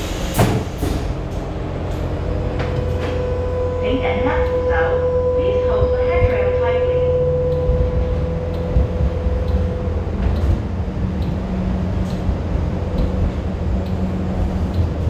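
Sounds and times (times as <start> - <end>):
low hum: 0.0 - 15.0
train wheels rumbling: 0.0 - 15.0
steady high tone: 1.4 - 14.4.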